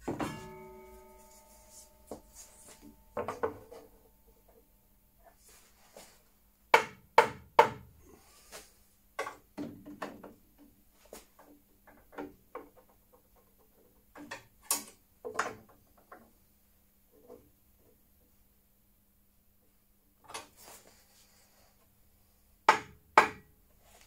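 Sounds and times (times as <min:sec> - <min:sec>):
wood and tools knocking on table: 0:03.2 - 0:03.8.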